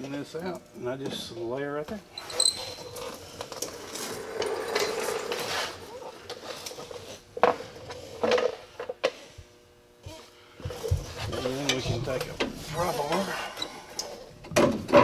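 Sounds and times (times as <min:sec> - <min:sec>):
metal scraping: 0:02.2 - 0:07.2.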